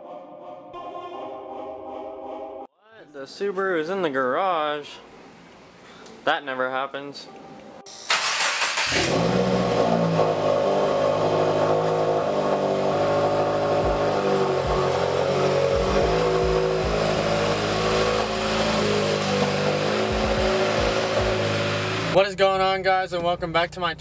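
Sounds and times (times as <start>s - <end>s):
car engine idling: 8.1s - 22.2s.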